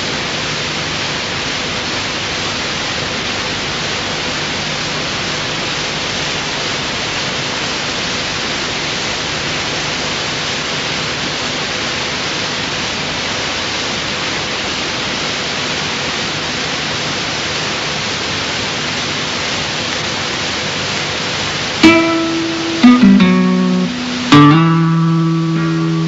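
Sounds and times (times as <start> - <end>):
steady static hiss: 0.0 - 26.0
plucked guitar note: 21.8 - 26.0.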